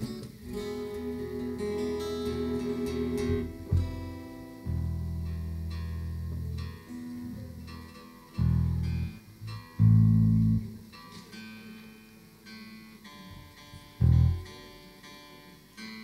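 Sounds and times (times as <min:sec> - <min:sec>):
plucked guitar notes: 0:00.0 - 0:16.0
loud held low bass notes: 0:02.2 - 0:06.7, 0:14.0 - 0:14.5.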